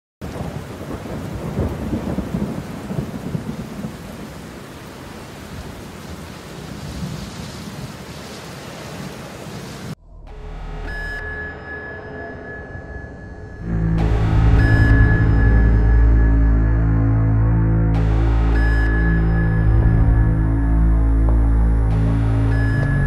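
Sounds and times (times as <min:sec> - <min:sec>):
heavy rain falling: 0:00.2 - 0:10.0, 0:18.0 - 0:23.0
thunder rumbling: 0:00.2 - 0:10.0.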